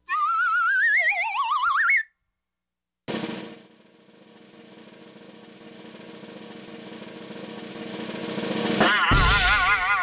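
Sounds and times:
snare drum roll: 3.1 - 10.0.

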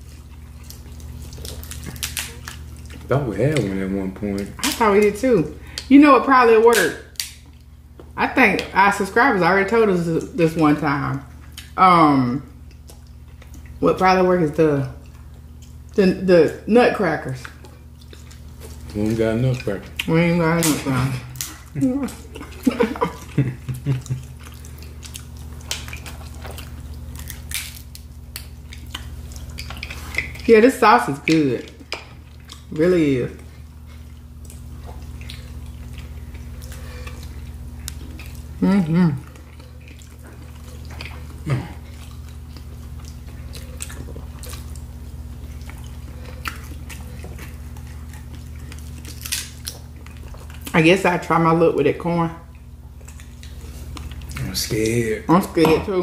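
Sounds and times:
wet chewing and squishing: 0.0 - 5.9, 6.5 - 56.0
low steady hum: 0.0 - 56.0
crab legs cracking apart: 0.7 - 5.9, 6.7 - 7.7, 23.7 - 30.4, 39.8 - 50.7
crab shell snapping: 27.2 - 29.8.

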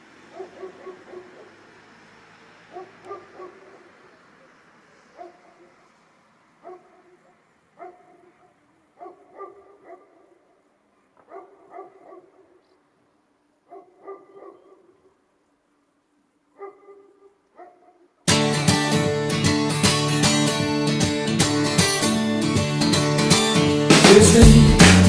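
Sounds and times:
dog barking: 0.3 - 1.6, 2.7 - 4.0, 5.1 - 5.9, 6.6 - 12.8, 13.6 - 15.2, 16.5 - 18.1.

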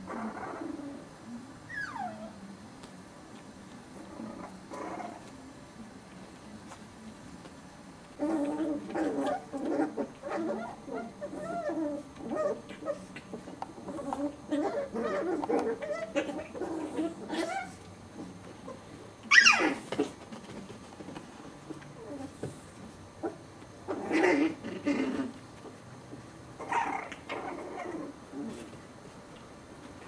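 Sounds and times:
puppies growling and yapping: 0.0 - 2.4, 4.0 - 5.3, 8.1 - 20.6, 21.6 - 22.6, 23.2 - 25.8, 26.6 - 28.8
puppy yelping: 1.7 - 2.4, 8.2 - 13.3, 13.9 - 17.8, 19.3 - 19.9.

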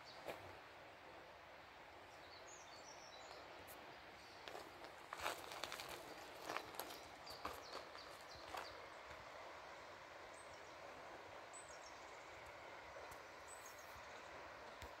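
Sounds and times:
low outdoor hiss: 0.0 - 15.0
footstep on gravel: 4.4 - 8.8.

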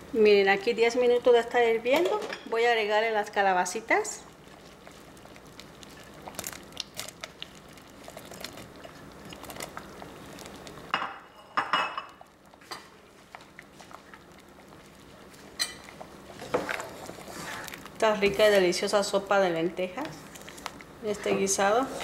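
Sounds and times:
kitchenware clinking and scraping: 11.0 - 12.9.

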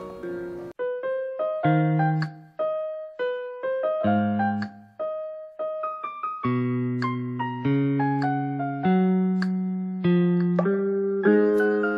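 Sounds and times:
light piano melody: 0.0 - 11.9.

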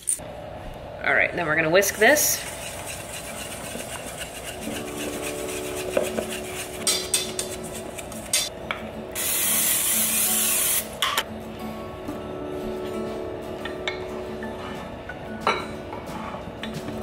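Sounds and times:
whisk scraping metal bowl: 1.9 - 8.5.

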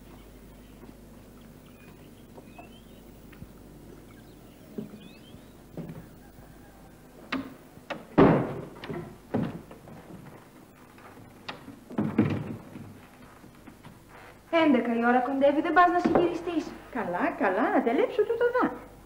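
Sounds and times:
wooden door knocks and thuds: 7.3 - 10.2, 11.5 - 13.0, 16.0 - 16.4.

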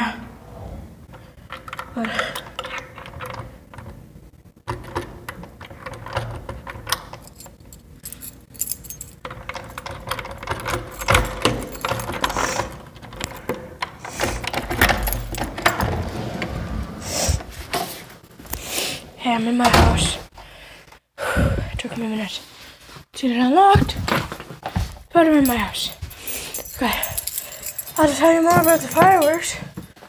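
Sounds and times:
keys jangling in a door lock: 4.7 - 16.0, 25.2 - 30.0.

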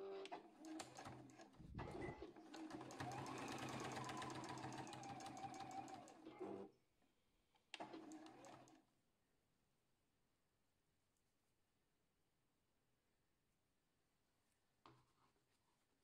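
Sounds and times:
sewing machine stitching: 0.2 - 6.6, 7.7 - 8.8.

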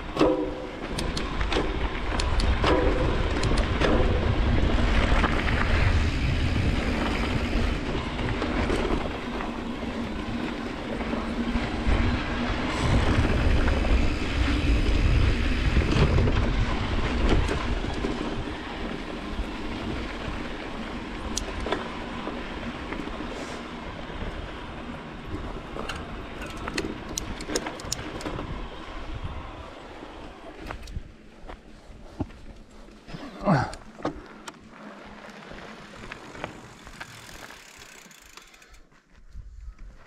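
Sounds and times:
wind buffeting microphone: 0.0 - 32.5
bike rattling and clicking: 0.0 - 40.0
tyres crunching over gravel: 29.7 - 39.2.

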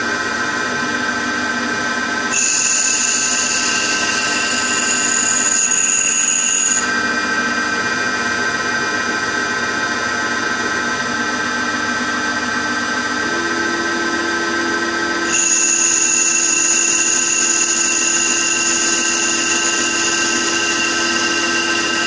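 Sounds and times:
lathe mechanical whine: 0.0 - 22.0
higher-pitched whine: 2.3 - 9.5, 13.0 - 22.0.

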